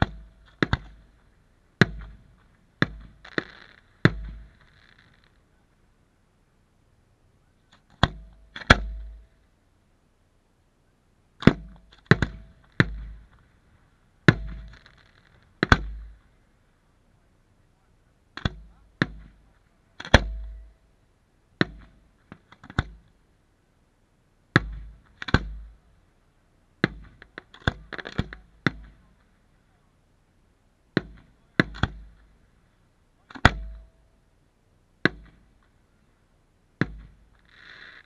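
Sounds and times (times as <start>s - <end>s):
firework shells bursting: 0.0s - 5.4s, 11.4s - 16.5s, 36.8s - 38.0s.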